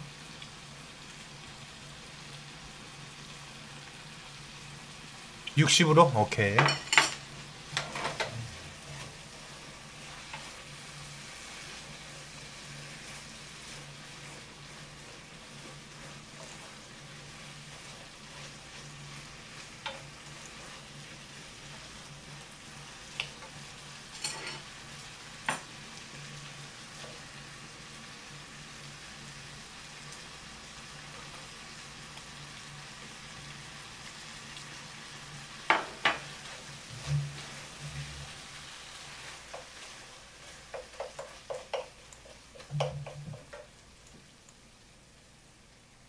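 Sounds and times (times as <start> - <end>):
food sizzling in a frying pan: 0.0 - 46.0
spatula knocking on pan: 35.7 - 36.3, 40.7 - 42.0, 42.6 - 43.7.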